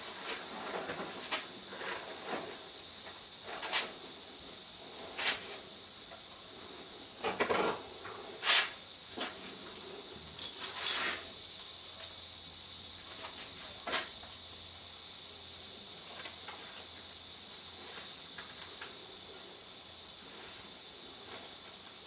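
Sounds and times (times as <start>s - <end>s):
leather and buckles clicking: 10.4s - 11.2s.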